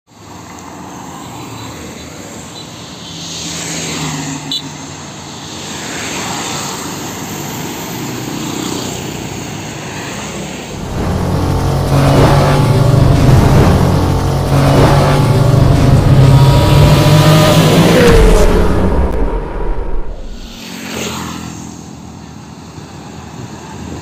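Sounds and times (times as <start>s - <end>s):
vehicles passing: 0.1s - 24.0s
lorry engine hum and tyre roar: 3.1s - 24.0s
short sharp sound: 10.7s - 20.6s.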